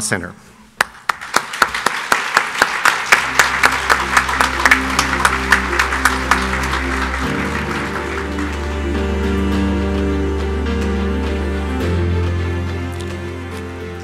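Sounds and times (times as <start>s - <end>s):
close regular hand claps: 0.8s - 8.8s
crowd applause: 0.8s - 14.0s
instrumental music with bass: 3.3s - 14.0s.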